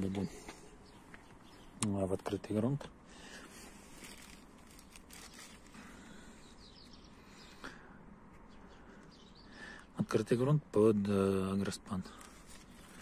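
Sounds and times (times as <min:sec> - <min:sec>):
plastic sheeting rustling: 0:03.6 - 0:05.8
faint bird chirps: 0:03.9 - 0:10.5.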